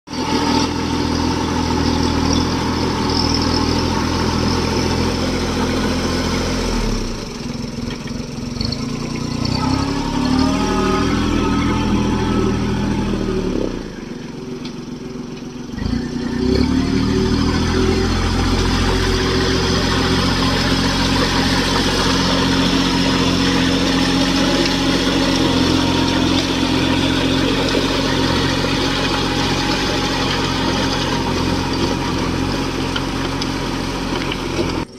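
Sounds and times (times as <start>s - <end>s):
tractor engine running: 0.1s - 34.9s.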